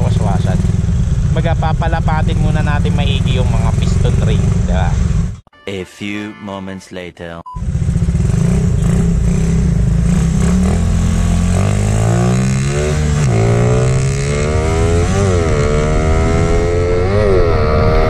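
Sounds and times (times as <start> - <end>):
motorcycle engine accelerating: 0.0 - 5.4, 7.6 - 18.0.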